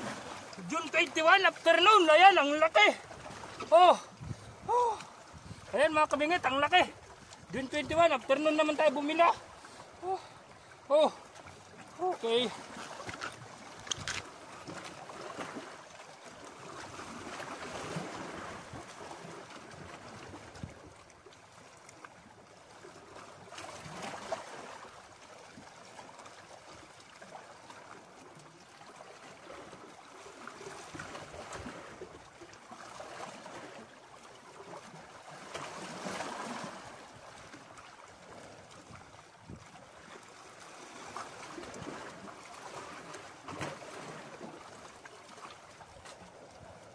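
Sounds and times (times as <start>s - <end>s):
waves washing against rocks: 0.0s - 10.3s.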